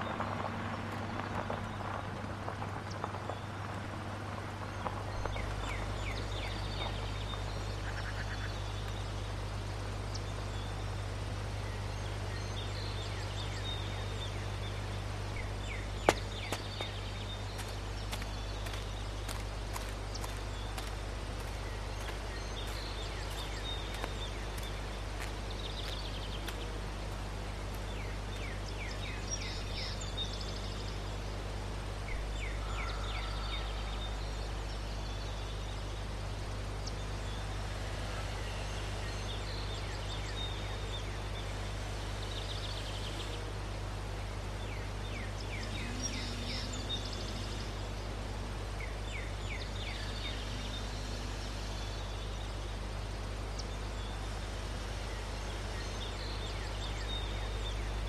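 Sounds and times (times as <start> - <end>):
low hum: 0.0 - 58.0
bird chirping: 4.6 - 31.4, 44.5 - 54.3.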